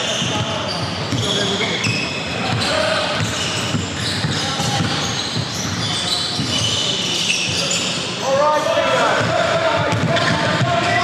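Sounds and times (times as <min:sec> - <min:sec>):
sneakers squeaking on court: 0:00.0 - 0:08.3
scattered voices: 0:00.0 - 0:11.0
basketball bouncing: 0:02.4 - 0:06.6, 0:09.1 - 0:11.0.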